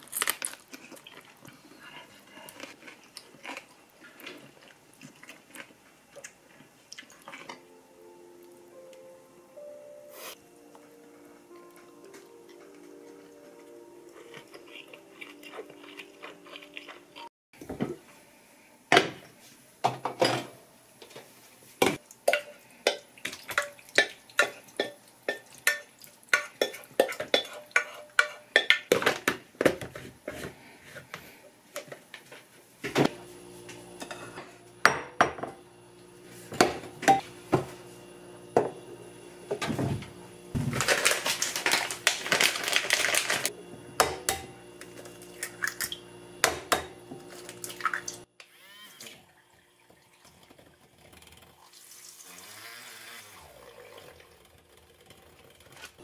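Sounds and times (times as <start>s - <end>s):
spoon scraping against pot: 24.0s - 28.8s.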